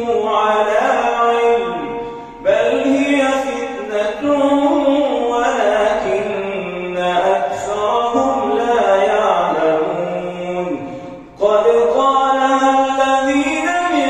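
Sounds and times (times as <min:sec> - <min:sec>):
man chanting into a microphone: 0:00.0 - 0:14.0.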